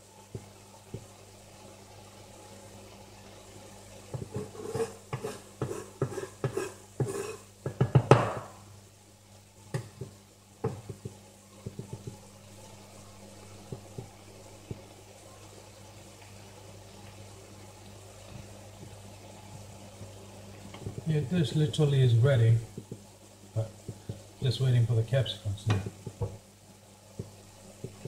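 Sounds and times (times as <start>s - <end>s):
utensil scraping in a pan: 4.2s - 7.5s.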